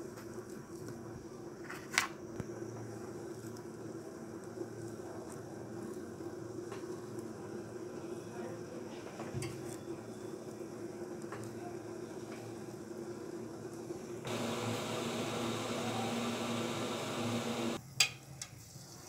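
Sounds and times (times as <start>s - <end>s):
loud steady hiss: 12.6s - 17.9s.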